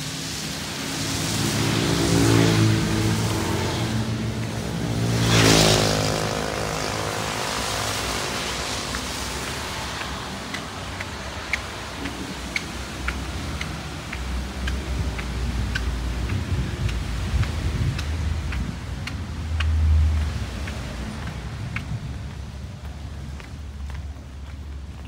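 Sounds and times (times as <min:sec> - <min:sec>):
motorcycle passing: 0:00.9 - 0:22.4.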